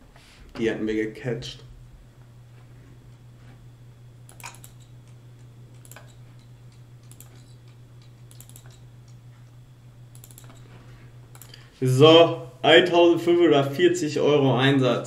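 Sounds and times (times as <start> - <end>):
steady low hum: 0.0 - 15.0
computer mouse clicks: 4.3 - 9.2, 10.1 - 10.7, 11.3 - 11.6.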